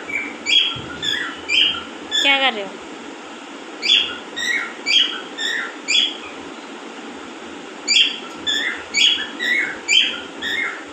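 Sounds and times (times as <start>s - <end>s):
parakeet squeaky chirps: 0.1s - 2.4s, 3.8s - 6.4s, 7.9s - 10.8s.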